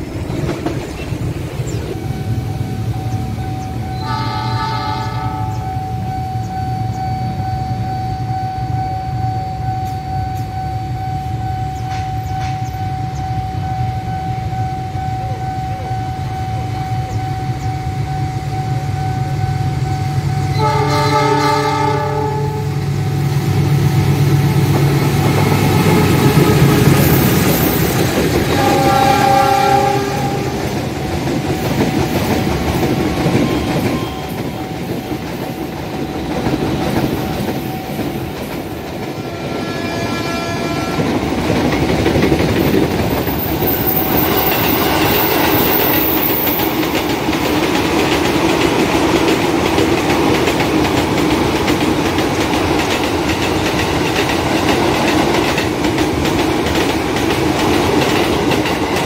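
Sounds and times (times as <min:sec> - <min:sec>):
train wheels clattering: 0:00.0 - 0:02.2, 0:24.4 - 0:39.4, 0:40.6 - 0:59.0
train horn blast: 0:02.0 - 0:05.9, 0:20.4 - 0:22.8, 0:25.9 - 0:30.7, 0:39.1 - 0:41.2.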